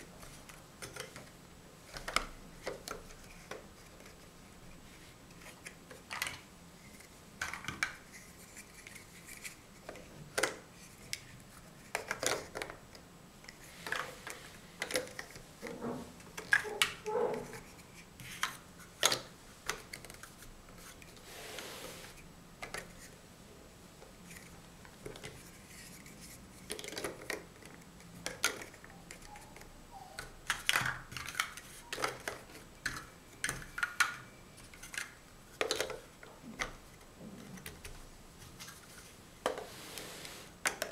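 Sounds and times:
plastic blocks clacking: 26.6 - 29.6, 30.2 - 36.8.

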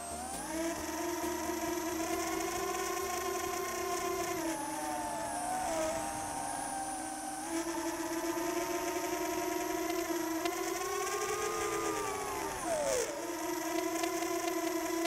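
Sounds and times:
drone propellers whining: 0.0 - 15.0.

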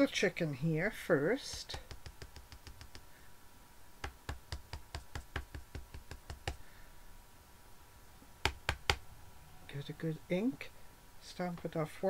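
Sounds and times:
rubber stamp tapping ink pad: 1.5 - 3.1, 4.0 - 6.6, 8.4 - 9.0.

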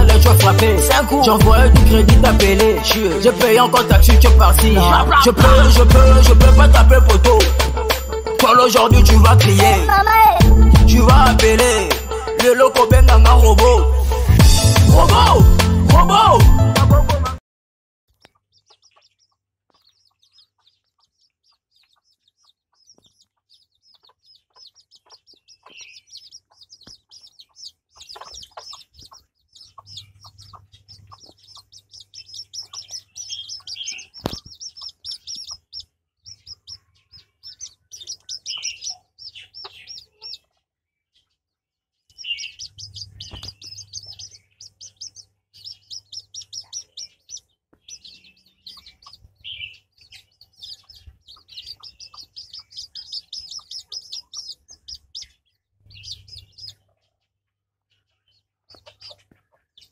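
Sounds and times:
hen clucking: 0.0 - 6.4, 18.1 - 40.7, 42.2 - 57.1, 58.7 - 59.9
chicks peeping: 0.0 - 17.1, 18.1 - 59.9.

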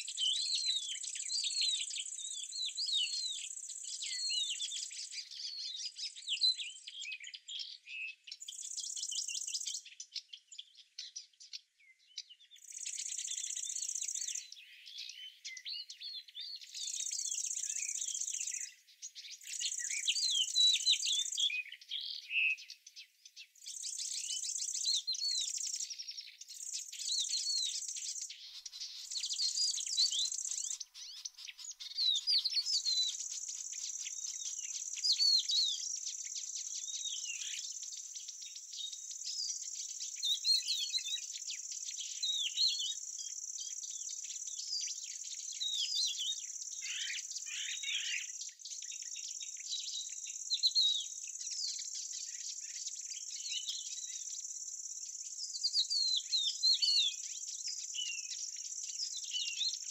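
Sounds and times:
songbirds chirping: 0.0 - 59.9.

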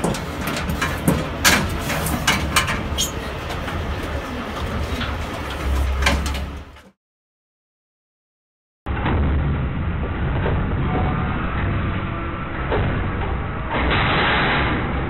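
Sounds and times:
knocks against metal slats: 0.0 - 3.0
steady low rumble: 8.9 - 15.0.

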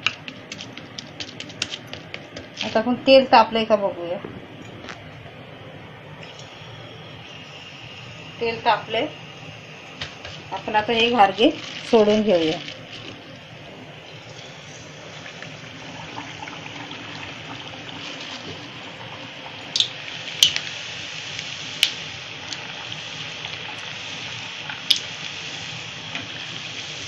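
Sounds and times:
oil spattering crackles: 0.0 - 2.9, 10.0 - 27.0
dough sizzling in hot oil: 0.0 - 3.7, 6.2 - 27.0.

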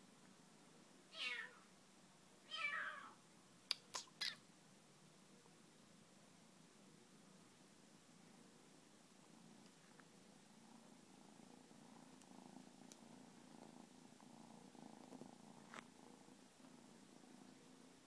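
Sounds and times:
kitten purring: 3.7 - 4.4, 6.8 - 18.0.

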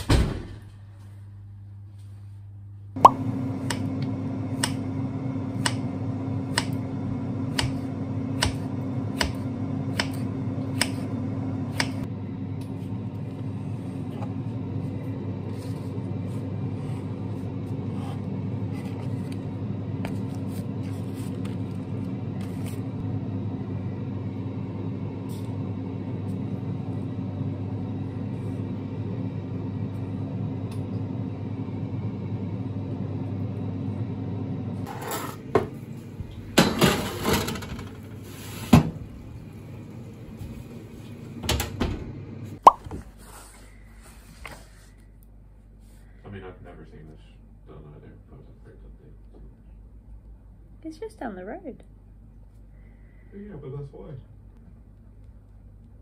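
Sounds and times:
low mechanical hum: 0.0 - 56.0
knife chopping on wooden board: 7.5 - 7.8, 8.4 - 10.2.

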